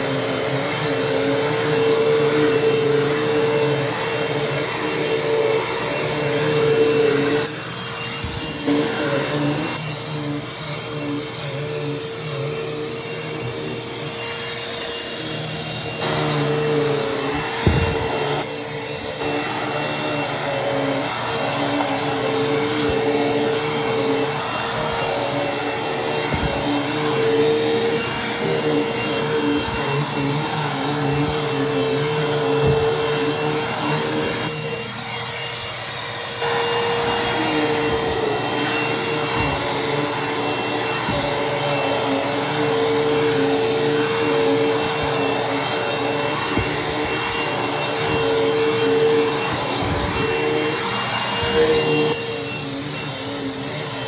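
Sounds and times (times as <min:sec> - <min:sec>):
hand vacuum running: 0:00.0 - 0:54.0
knock: 0:17.6 - 0:18.1.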